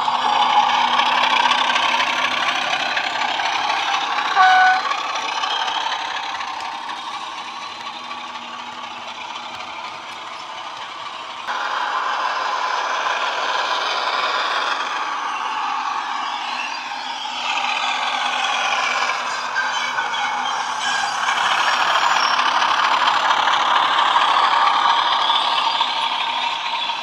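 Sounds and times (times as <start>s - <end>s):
diesel engine sound from small speaker: 0.0s - 27.0s
model wheels rattling on track: 0.0s - 27.0s
locomotive horn blast: 4.3s - 5.0s.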